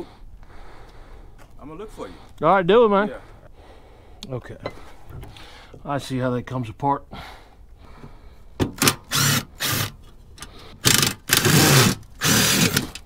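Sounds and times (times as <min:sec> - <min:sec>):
cordless driver whirring: 0:08.8 - 0:13.0.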